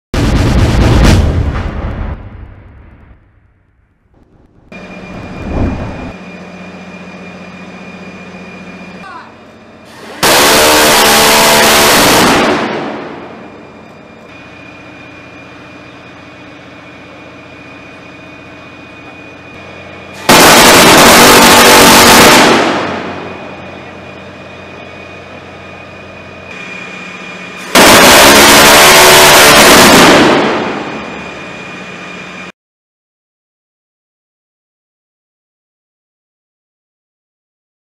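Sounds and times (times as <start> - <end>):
steady hum: 4.2 - 10.1
gatling gun firing bursts: 20.3 - 22.9.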